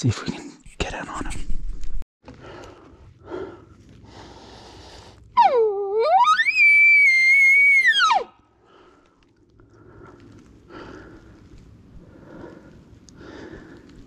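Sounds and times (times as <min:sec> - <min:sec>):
soft regular breaths: 0:02.3 - 0:05.4, 0:08.4 - 0:14.0.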